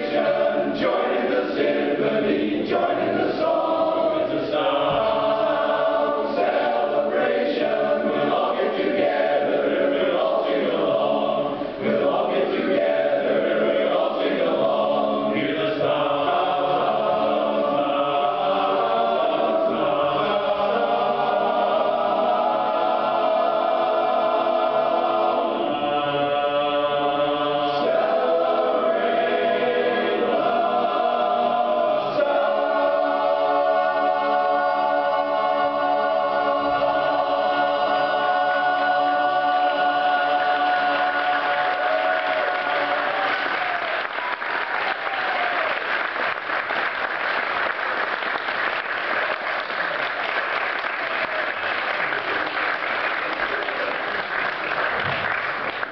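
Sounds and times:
men's chorus singing a cappella: 0:00.0 - 0:43.8.

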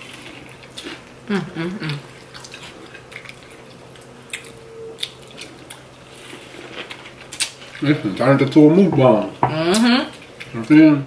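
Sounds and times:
crunchy chewing: 0:01.9 - 0:08.3.

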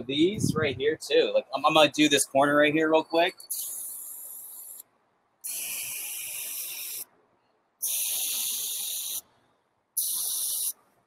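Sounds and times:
spray can hissing: 0:03.5 - 0:04.8, 0:05.4 - 0:07.1, 0:07.8 - 0:09.2, 0:10.0 - 0:10.8.

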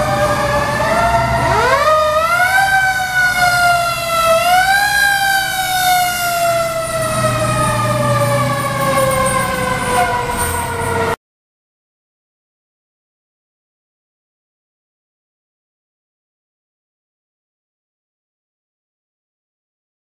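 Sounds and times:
fire engine siren wailing: 0:00.0 - 0:11.2.

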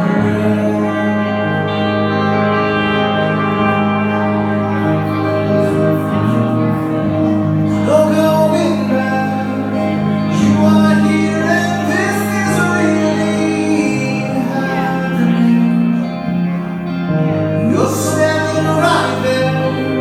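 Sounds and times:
electric guitar held notes: 0:00.0 - 0:20.0
person singing: 0:00.0 - 0:20.0.

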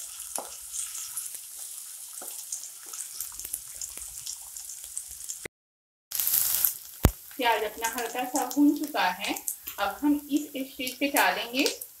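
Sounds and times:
onions sizzling in hot oil: 0:00.0 - 0:05.5, 0:06.1 - 0:12.0
spatula scraping and tapping: 0:00.3 - 0:03.0.

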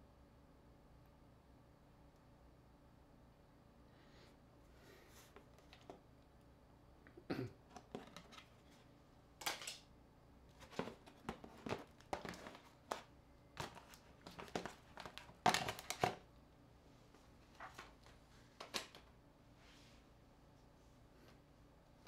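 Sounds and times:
phones clattering on a table: 0:09.4 - 0:09.8.

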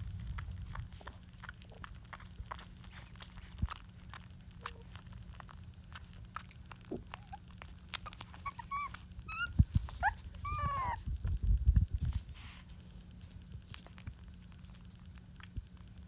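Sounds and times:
puppies suckling clicks: 0:00.0 - 0:16.0
puppy whimpering: 0:06.3 - 0:11.1.

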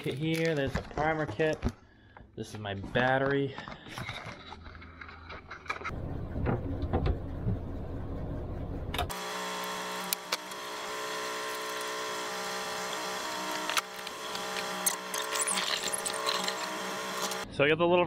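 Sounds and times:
rustling and handling noise: 0:00.0 - 0:05.9
mechanical drone: 0:05.9 - 0:17.4.

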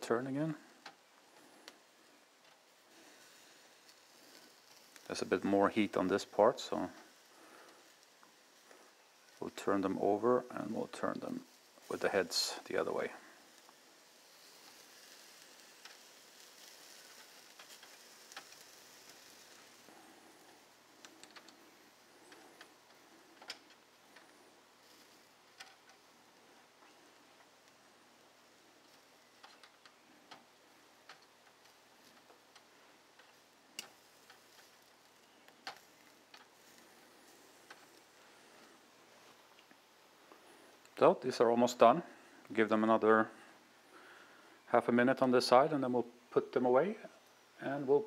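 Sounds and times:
vegetables sizzling on grill: 0:00.4 - 0:41.0
metal tongs clicking on grill grate: 0:31.0 - 0:34.7.

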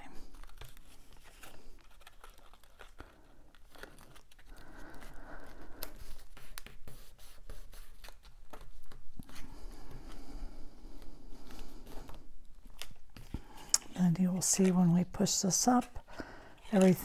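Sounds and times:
paper rubbing and rustling: 0:00.2 - 0:10.3.

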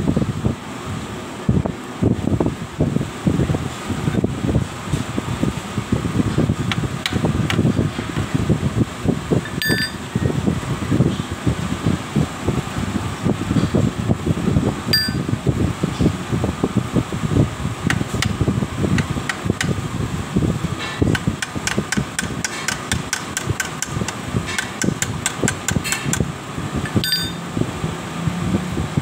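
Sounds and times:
fan-like rumble: 0:00.0 - 0:29.0
metal-on-metal tapping: 0:09.5 - 0:10.0, 0:15.0 - 0:15.2, 0:21.2 - 0:26.2, 0:26.9 - 0:27.4.

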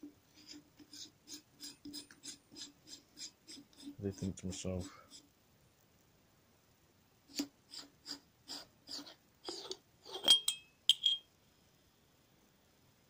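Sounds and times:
metal clinks: 0:10.2 - 0:11.3.

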